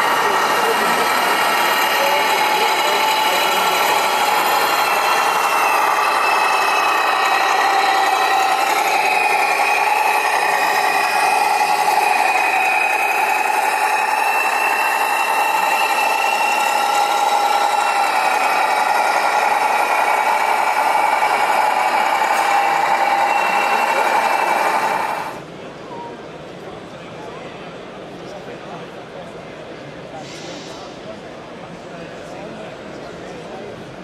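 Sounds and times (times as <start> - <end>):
rc truck motor buzzing: 0.0 - 25.4.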